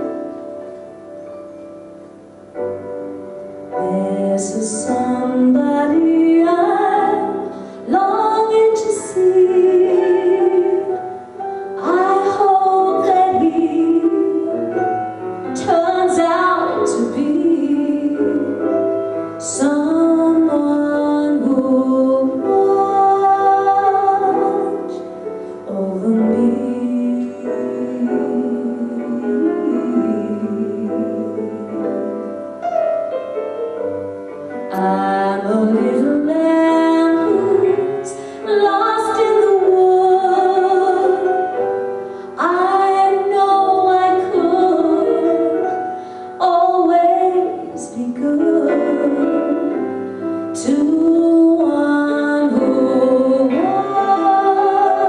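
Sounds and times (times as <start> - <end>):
instrumental accompaniment: 0.0 - 55.0
woman singing a ballad: 3.8 - 32.3, 34.7 - 55.0.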